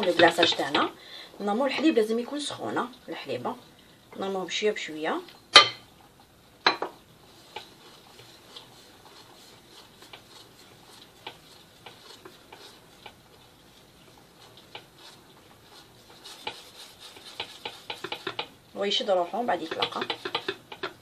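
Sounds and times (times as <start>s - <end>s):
whisk ticking against glass bowl: 0.0s - 1.0s, 6.6s - 21.0s.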